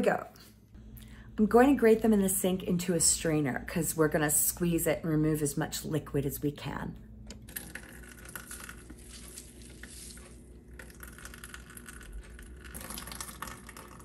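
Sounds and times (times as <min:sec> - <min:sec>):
juice dripping into sink: 0:07.5 - 0:14.0.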